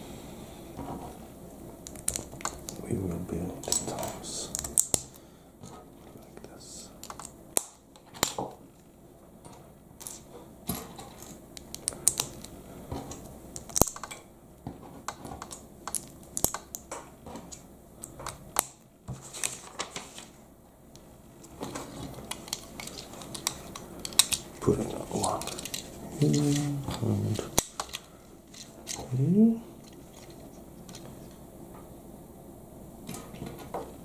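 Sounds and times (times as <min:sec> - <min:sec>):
plastic bricks clicking together: 0:07.0 - 0:08.4, 0:15.4 - 0:16.8.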